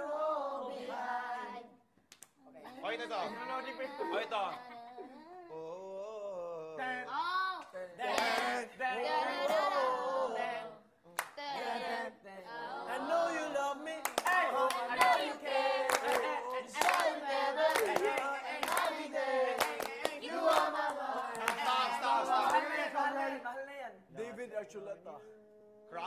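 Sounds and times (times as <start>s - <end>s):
group of voices singing: 0.0s - 1.8s, 2.7s - 23.6s
hand claps: 14.0s - 15.2s, 15.9s - 18.9s.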